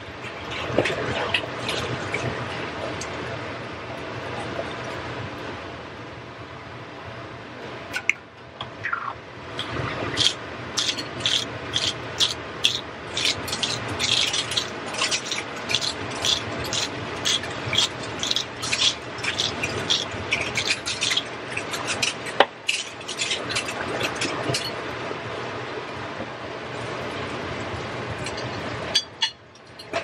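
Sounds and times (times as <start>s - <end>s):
spice grinder grinding: 9.6s - 24.2s.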